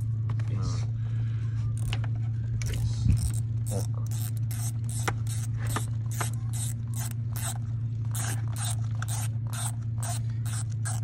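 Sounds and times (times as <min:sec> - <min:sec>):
steady low hum: 0:00.0 - 0:11.0
hand ratchet clicking: 0:02.6 - 0:11.0.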